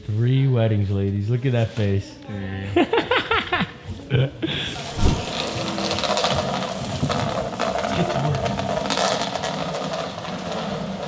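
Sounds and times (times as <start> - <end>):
bicycle rattling on tiled floor: 4.8 - 11.0.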